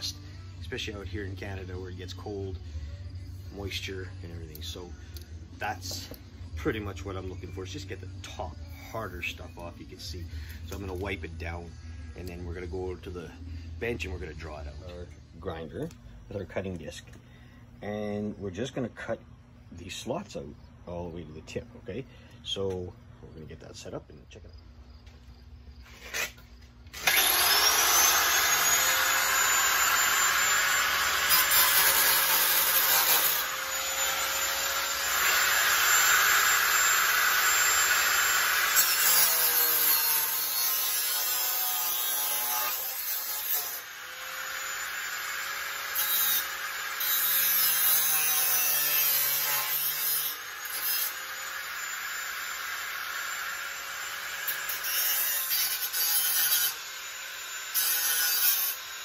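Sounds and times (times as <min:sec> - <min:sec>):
angle grinder cutting metal: 0:25.9 - 0:59.0.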